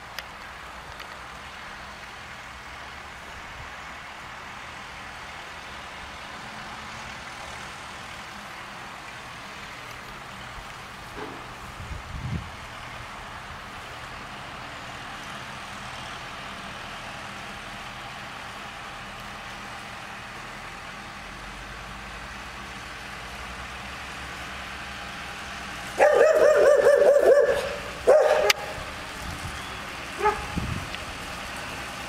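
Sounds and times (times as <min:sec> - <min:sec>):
tractor engine running: 0:00.0 - 0:32.0
dog barking loudly: 0:26.0 - 0:28.8, 0:30.2 - 0:30.6.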